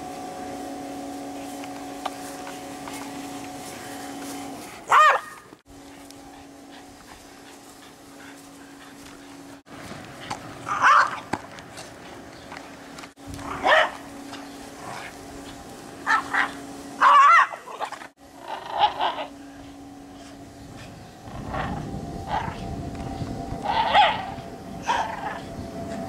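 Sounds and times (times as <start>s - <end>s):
steady low hum: 0.0s - 26.0s
dog barking and yipping: 4.9s - 5.5s, 10.7s - 11.3s, 13.5s - 14.0s, 16.0s - 18.0s, 23.7s - 24.3s.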